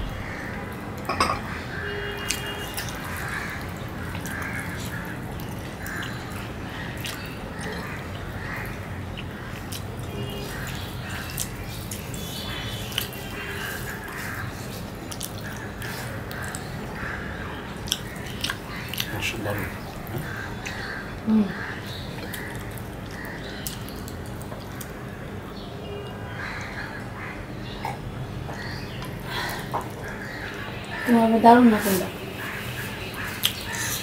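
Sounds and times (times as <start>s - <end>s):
fingers squelching in food: 7.0s - 16.8s, 17.8s - 20.9s.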